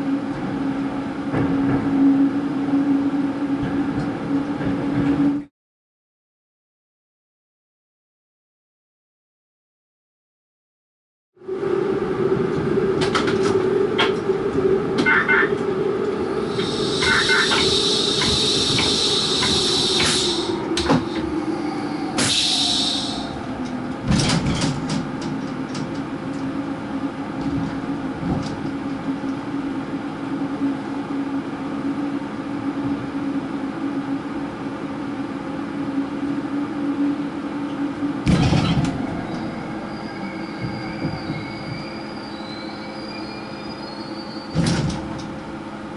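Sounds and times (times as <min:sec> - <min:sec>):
train motor hum: 0:11.7 - 0:45.9
high hiss: 0:16.4 - 0:20.6, 0:21.8 - 0:23.4.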